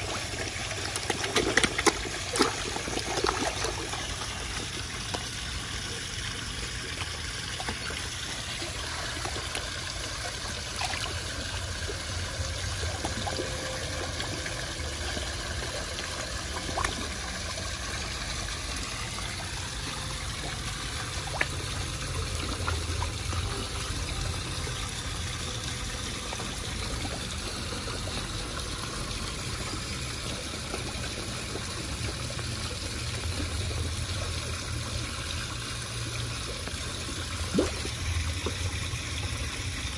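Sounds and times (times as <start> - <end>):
pond water trickling: 0.0 - 39.9.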